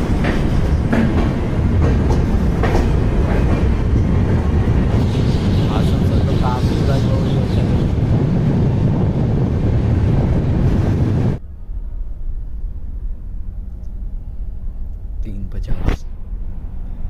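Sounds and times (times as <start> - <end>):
wind buffeting microphone: 0.0 - 15.2
train running noise: 0.0 - 17.0
low rumble and hum inside coach: 10.8 - 17.0.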